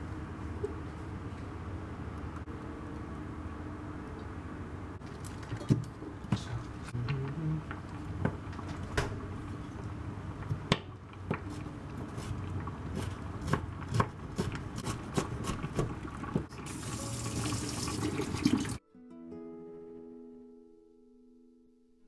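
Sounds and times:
knife chopping on wooden board: 12.9 - 16.0.

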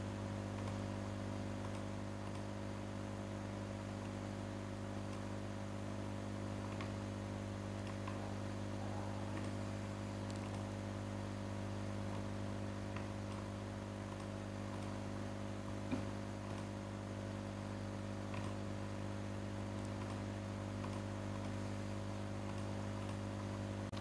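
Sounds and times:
electrical mains hum: 0.0 - 24.0
computer mouse clicks: 0.5 - 0.9, 1.6 - 2.6, 5.0 - 5.4, 6.5 - 7.1, 7.7 - 8.3, 9.2 - 10.7, 12.0 - 15.0, 15.7 - 16.8, 18.2 - 18.7, 19.6 - 21.7, 22.4 - 24.0.

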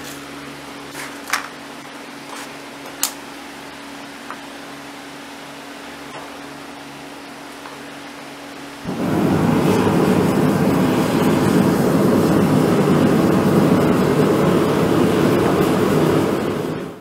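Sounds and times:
gas forge burner rushing: 8.8 - 17.0.

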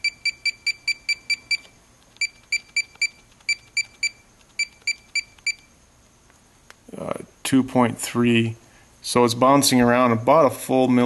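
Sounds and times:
short high keypad beeps: 0.0 - 5.7.

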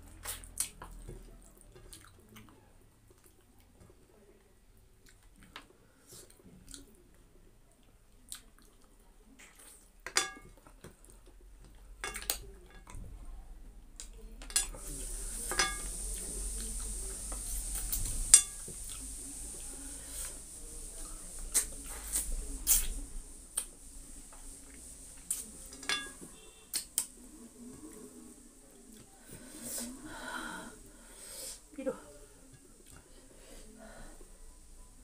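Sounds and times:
chewing: 0.0 - 4.1, 5.0 - 7.0, 7.7 - 13.0, 15.9 - 20.4
clinks on ceramic plate: 10.1 - 10.5, 15.5 - 15.9, 25.8 - 26.3
fingers mixing food on plate: 14.0 - 20.5, 21.3 - 30.0
steady hiss: 14.6 - 35.0.

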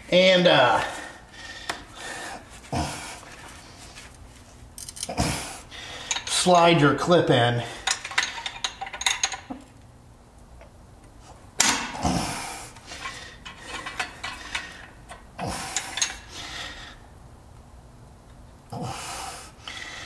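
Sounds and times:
metal scraping and clinking: 12.9 - 16.3.

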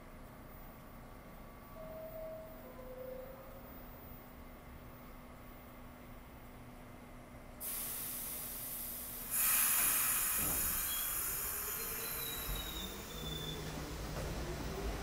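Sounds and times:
train rumbling: 0.9 - 15.0
train air brakes hissing: 7.6 - 13.8.

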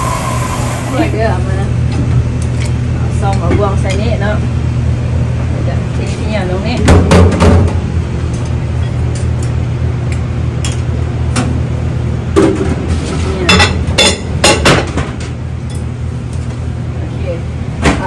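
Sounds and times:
low hum of kitchen machinery: 0.0 - 18.0
dishes clinking in a steel sink: 12.4 - 15.9.

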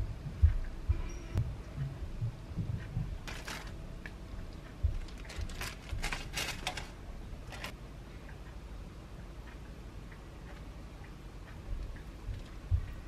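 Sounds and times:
plastic wrapper crinkling: 3.2 - 3.8, 5.0 - 7.7.

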